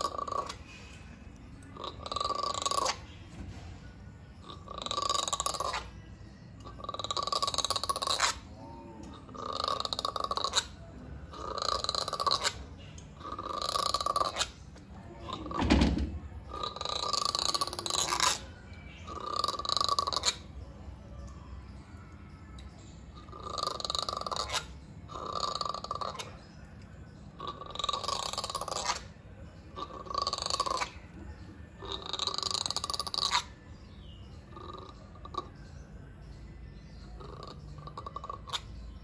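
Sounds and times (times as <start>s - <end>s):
monkey giving harsh grunts: 1.8s - 3.0s, 4.4s - 5.9s, 13.2s - 14.5s, 16.5s - 18.4s.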